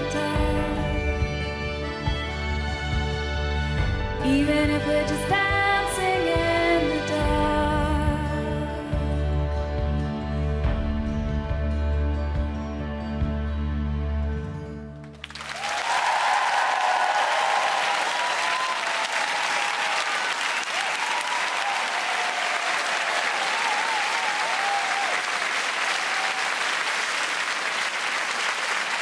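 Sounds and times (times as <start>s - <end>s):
audience applause and cheering: 15.1s - 29.0s.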